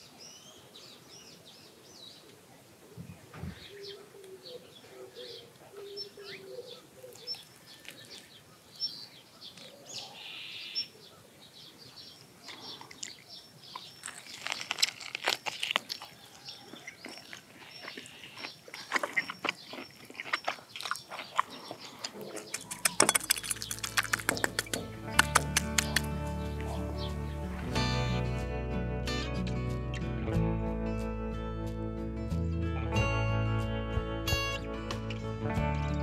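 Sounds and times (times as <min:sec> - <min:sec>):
birds calling and chirping: 0:00.0 - 0:14.8, 0:15.6 - 0:28.2
person chewing steak off the bone: 0:12.5 - 0:27.2.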